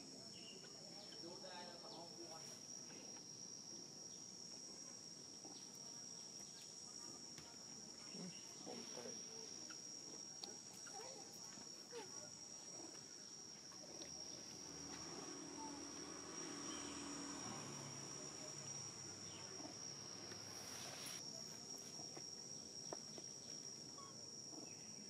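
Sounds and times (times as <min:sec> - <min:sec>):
high-pitched insect drone: 0:07.9 - 0:25.0.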